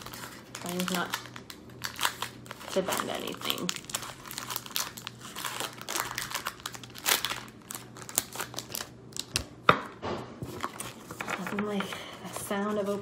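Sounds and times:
foil wrapper crinkling: 0.0s - 9.6s.

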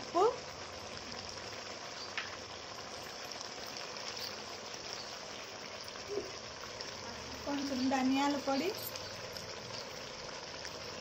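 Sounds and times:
chicken frying sizzling: 0.0s - 11.0s.

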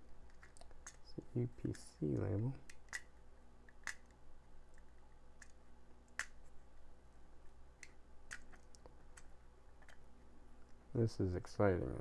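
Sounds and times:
plastic housing clicks and taps: 2.6s - 3.1s.

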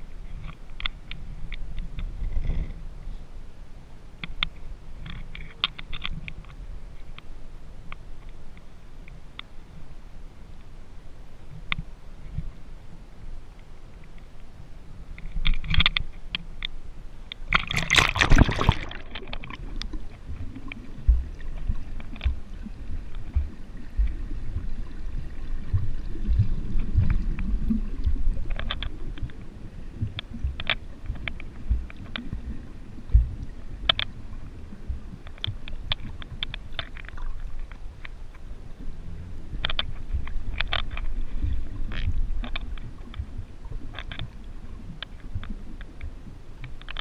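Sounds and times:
muffled underwater rumble: 0.0s - 47.0s
camera splashing into water: 17.5s - 20.2s.

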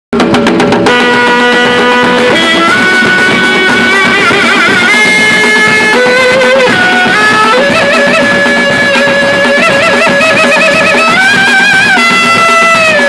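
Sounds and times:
reedy wind instrument melody: 0.8s - 13.0s.

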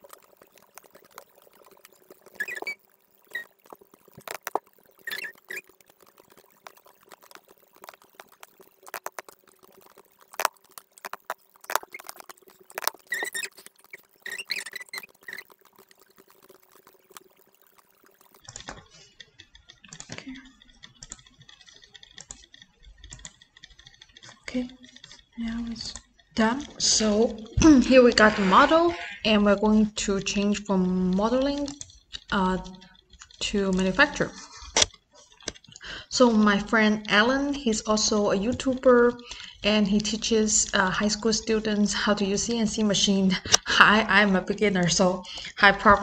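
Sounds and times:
mouse and keyboard clicking: 0.0s - 26.0s
faint steady hum: 0.0s - 46.0s.

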